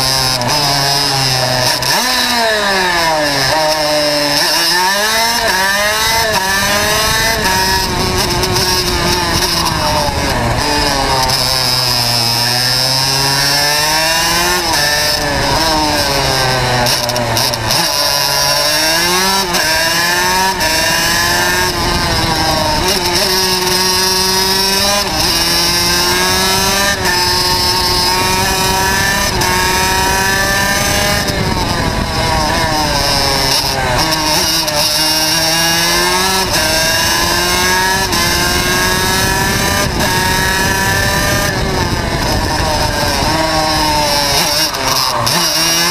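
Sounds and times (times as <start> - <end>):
racing kart engine revving: 0.0 - 45.9.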